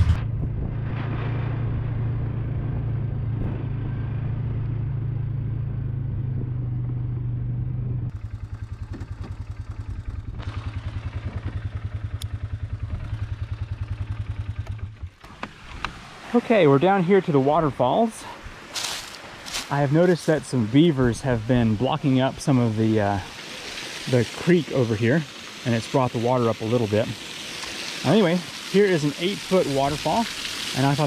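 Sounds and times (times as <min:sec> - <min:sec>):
atv engine running: 0:00.0 - 0:15.9.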